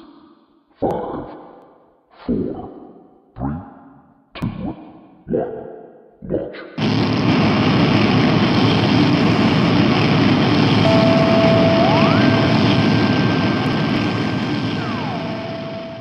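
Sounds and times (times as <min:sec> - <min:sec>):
rocket launch roar: 0:06.8 - 0:16.0
rising tone: 0:10.8 - 0:16.0.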